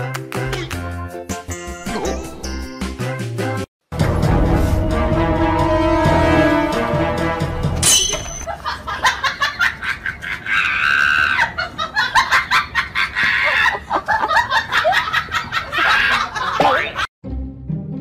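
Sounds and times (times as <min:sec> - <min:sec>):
people laughing: 0:08.5 - 0:17.1.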